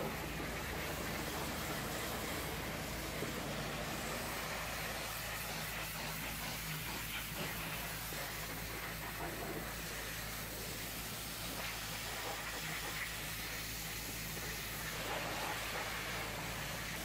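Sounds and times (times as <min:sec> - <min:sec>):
pressure washer jet spraying: 0:00.0 - 0:17.0.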